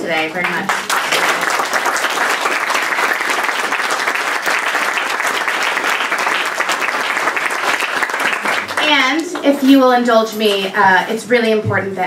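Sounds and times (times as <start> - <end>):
audience applauding: 0.4 - 9.6.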